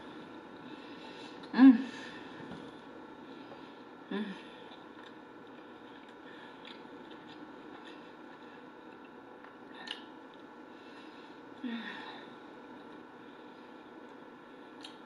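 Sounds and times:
faint room hum: 0:00.0 - 0:15.0
person chewing food: 0:04.6 - 0:10.6.

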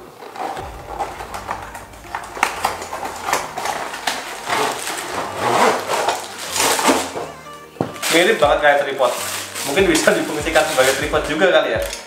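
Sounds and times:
cardboard and plastic rustling: 0:03.4 - 0:12.0.

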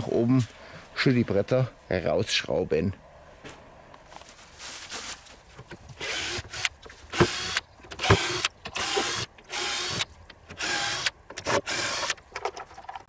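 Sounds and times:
cordless drill bursts: 0:06.0 - 0:12.2.

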